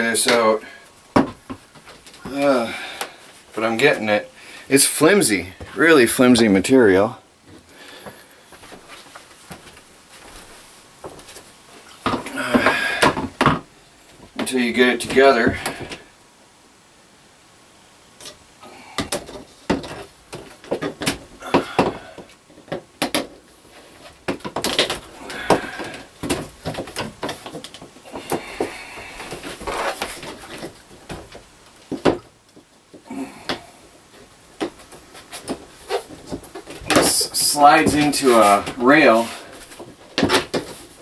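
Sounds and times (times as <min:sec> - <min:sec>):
panels rubbing: 0:23.7 - 0:32.2, 0:33.0 - 0:41.0.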